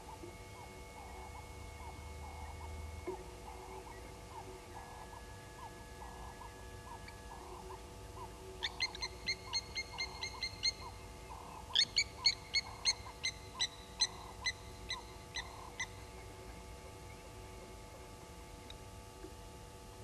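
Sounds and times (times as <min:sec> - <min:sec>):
lapwings metallic alarm calls: 0:03.4 - 0:16.0.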